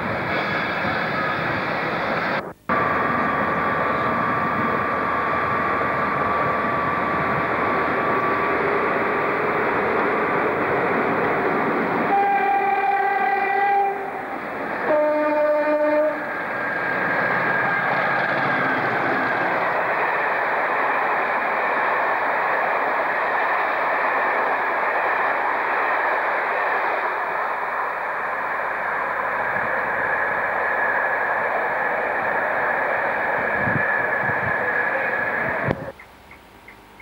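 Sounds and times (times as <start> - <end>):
diesel locomotive passing: 0.0 - 36.4
two-tone train horn: 12.0 - 14.2, 14.8 - 16.4.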